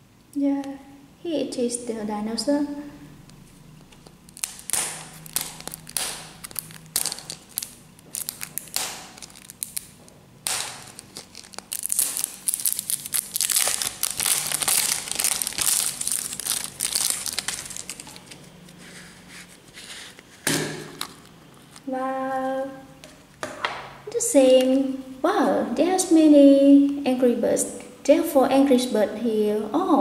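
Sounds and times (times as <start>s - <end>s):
plastic wrap tearing and crinkling: 3.9s - 21.9s.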